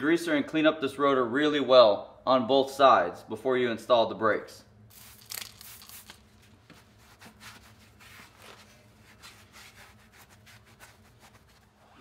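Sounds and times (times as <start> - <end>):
low steady hum: 0.0 - 12.0
cloth rag scrubbing metal: 6.7 - 12.0.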